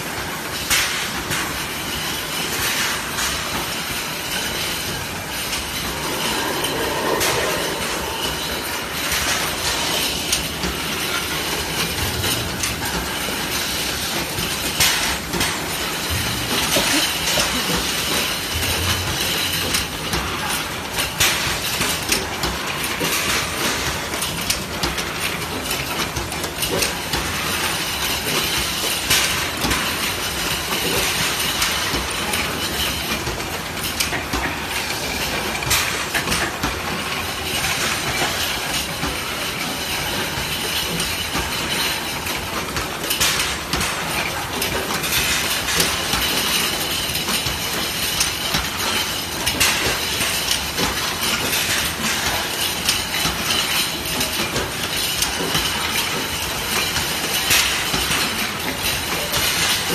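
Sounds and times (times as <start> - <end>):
machinery din: 4.3 - 14.5.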